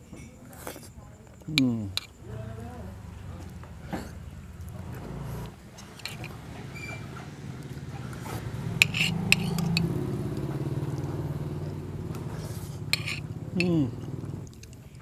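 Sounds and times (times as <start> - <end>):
motorbike engine running: 2.0 - 14.5
spoon scraping ceramic plate: 5.8 - 7.0, 8.3 - 9.9, 12.4 - 13.8.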